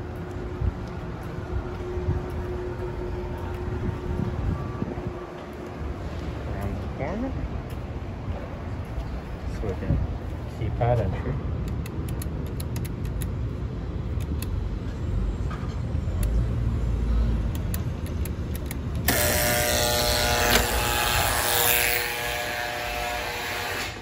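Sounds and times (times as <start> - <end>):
city traffic rumble: 0.0 - 24.0
rush of noise with buzzing hum: 16.3 - 24.0.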